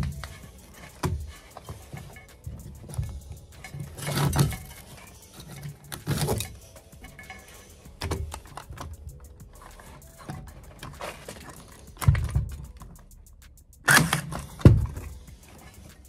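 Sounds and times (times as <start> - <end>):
knocks and clatter of hand work: 0.0 - 12.9, 14.0 - 16.0.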